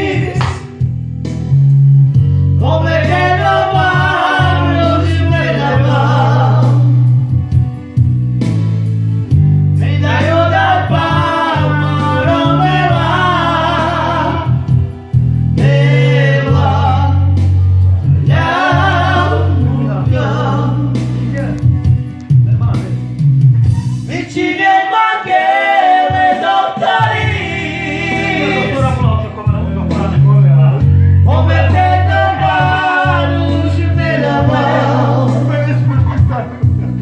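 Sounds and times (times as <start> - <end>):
man singing into a microphone: 0.0 - 0.4, 2.6 - 7.0, 9.8 - 14.7, 15.6 - 17.5, 18.1 - 21.2, 24.1 - 30.2, 31.2 - 36.3
deep bass line: 0.0 - 25.4, 26.0 - 37.0
keyboard accompaniment: 0.0 - 37.0.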